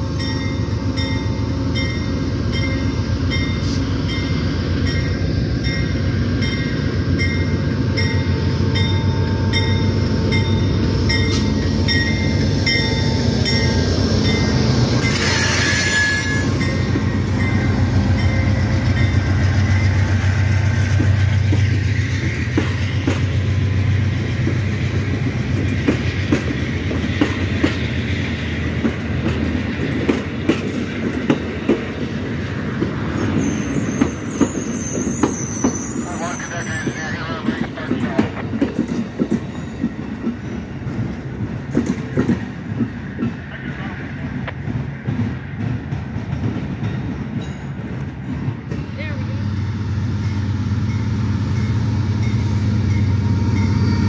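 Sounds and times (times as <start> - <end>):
diesel locomotive engine rumble: 0.0 - 54.0
train bell dinging: 0.1 - 21.7, 38.8 - 41.2, 46.4 - 48.0, 48.9 - 54.0
train wheels clicking over rail joints: 5.7 - 36.0, 36.8 - 49.0.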